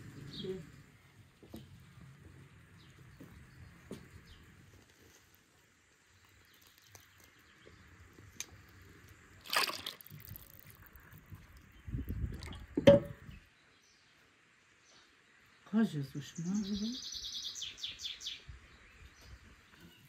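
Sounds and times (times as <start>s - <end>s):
liquid sloshing and splashing: 9.4s - 13.2s.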